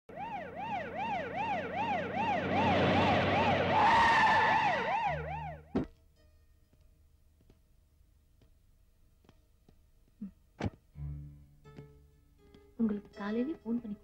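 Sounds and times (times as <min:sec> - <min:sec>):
car engine: 0:00.1 - 0:05.8
police siren wailing: 0:00.1 - 0:05.8.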